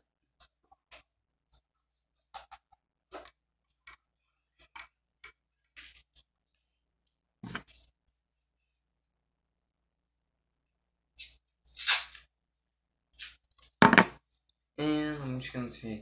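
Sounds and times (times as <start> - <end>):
tape tearing and peeling: 11.2 - 12.3, 13.2 - 13.7.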